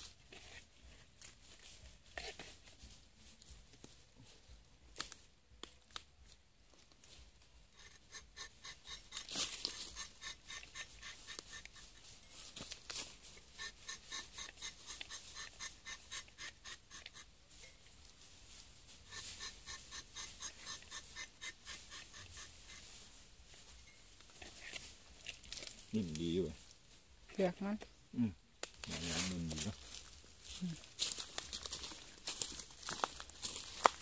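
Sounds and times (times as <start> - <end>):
knife scraping tree bark: 7.8 - 17.3, 19.0 - 22.8.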